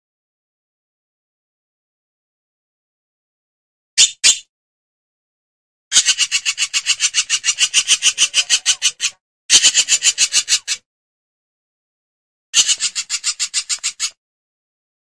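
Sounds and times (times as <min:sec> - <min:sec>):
hornbill calling in pulsed series: 0:05.9 - 0:10.8, 0:12.6 - 0:14.2.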